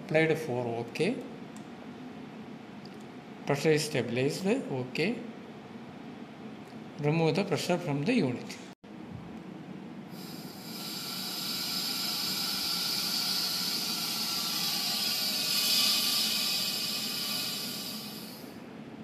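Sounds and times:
gas hissing from valve: 10.1s - 18.6s.

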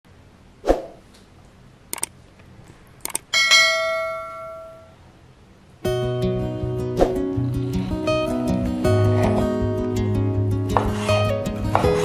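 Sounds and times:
quick clicks: 1.9s - 2.1s, 3.0s - 3.3s
bell chime: 3.4s - 4.9s.

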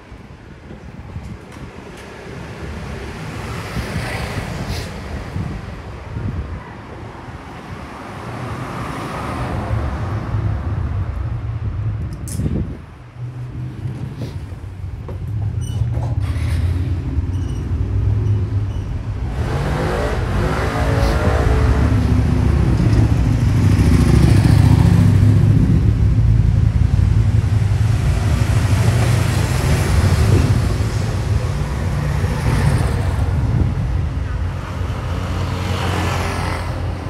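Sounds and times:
vehicle engines running: 9.8s - 37.0s.

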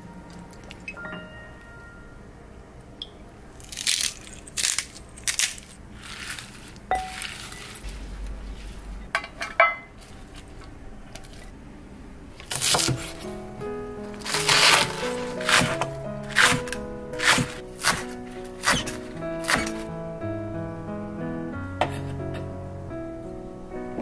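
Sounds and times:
salad tossing wet rustling: 5.9s - 9.0s.

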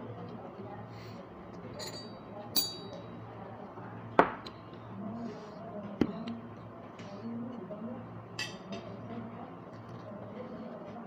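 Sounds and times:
tableware clinking: 1.8s - 3.0s.

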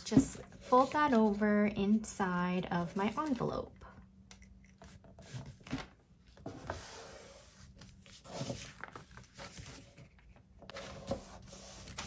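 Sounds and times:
paper envelope rustling: 7.6s - 12.0s.

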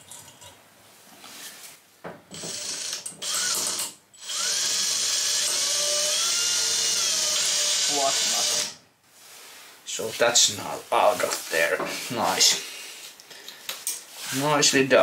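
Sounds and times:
cordless drill drilling metal: 2.3s - 8.8s.

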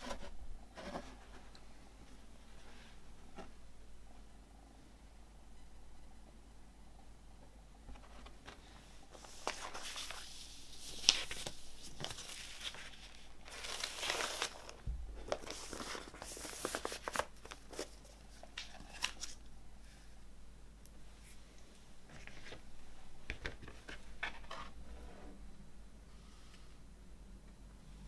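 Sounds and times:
paper sleeve rustling and sliding: 8.2s - 18.0s.

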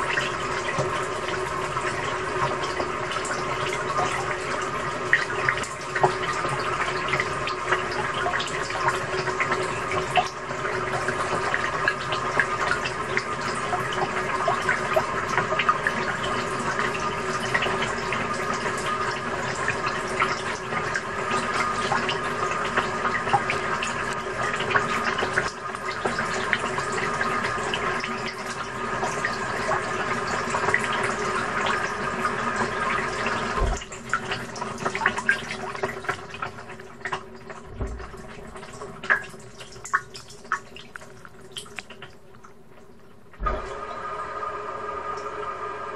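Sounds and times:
water sloshing in washing machine: 0.0s - 45.9s
steady hum: 33.5s - 35.0s, 37.4s - 39.8s, 43.1s - 45.0s
low thump: 33.6s - 34.3s, 37.6s - 38.6s, 43.4s - 43.8s.

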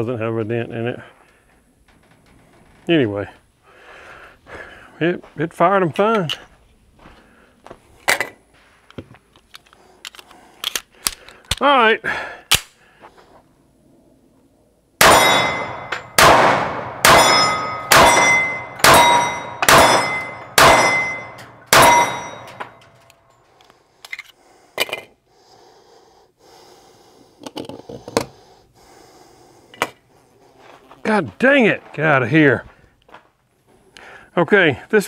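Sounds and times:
pistol shots with ringing tail: 15.0s - 22.6s.

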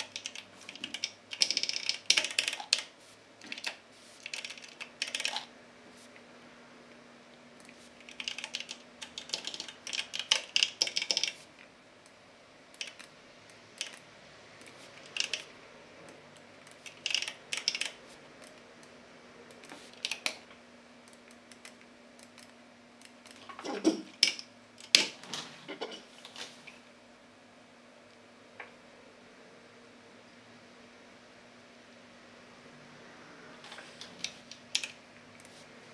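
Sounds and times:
computer keyboard typing: 0.0s - 5.5s, 7.6s - 11.5s, 12.8s - 13.2s, 13.8s - 15.5s, 16.1s - 18.6s, 19.5s - 20.5s, 34.0s - 35.6s
faint steady hum: 0.0s - 35.9s.

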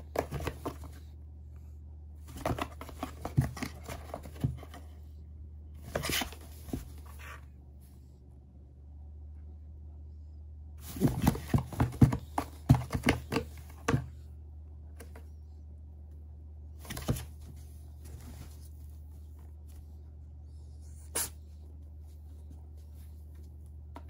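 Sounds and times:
kitten scratching cardboard box: 0.0s - 1.0s, 2.2s - 4.9s, 5.8s - 7.4s, 10.8s - 14.0s.

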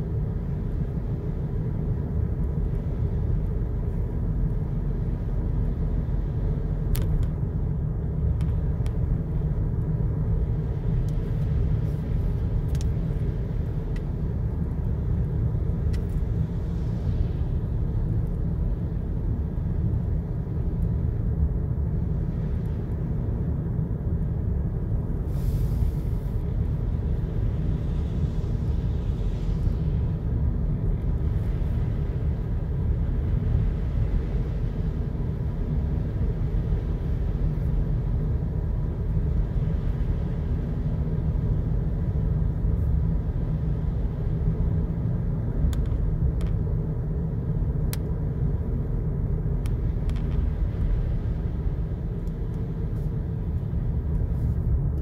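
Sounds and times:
car driving rumble inside cabin: 0.0s - 55.0s
brief hiss: 25.3s - 26.4s.

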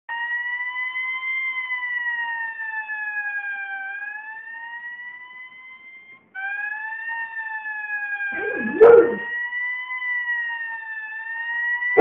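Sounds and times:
fire engine siren wailing: 0.1s - 12.0s.

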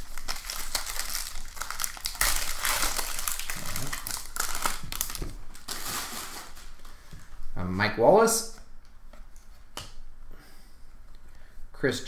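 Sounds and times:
foil wrapper tearing and crinkling: 0.0s - 6.9s.

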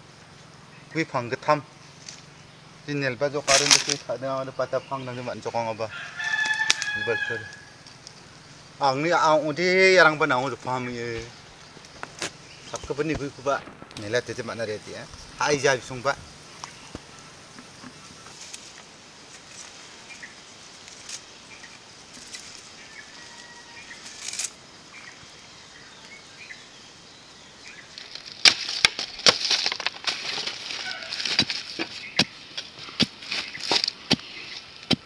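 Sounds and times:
stick scraping dry soil: 11.8s - 24.6s, 27.9s - 35.0s.

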